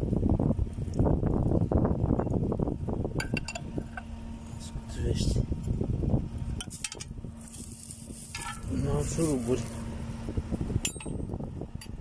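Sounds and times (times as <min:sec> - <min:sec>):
wrench scraping and rustling: 0:06.6 - 0:09.9.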